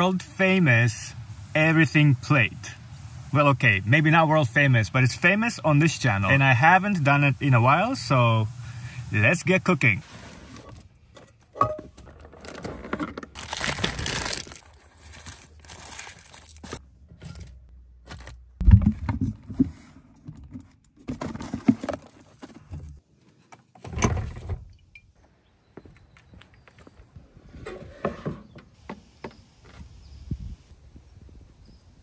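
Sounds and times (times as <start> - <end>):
plastic bags crinkling: 12.3 - 16.8
dull thump: 18.6 - 19.8.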